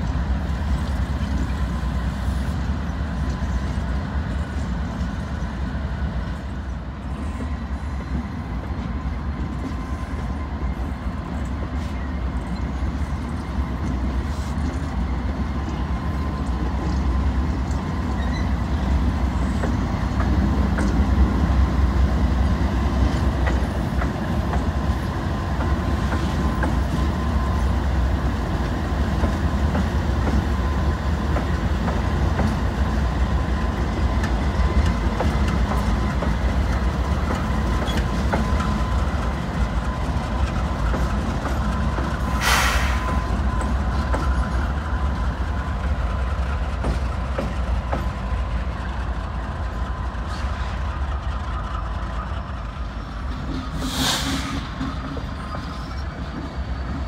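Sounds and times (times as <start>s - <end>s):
locomotive engines rumbling: 0.0s - 57.0s
brief hiss: 42.3s - 43.2s, 53.7s - 54.8s.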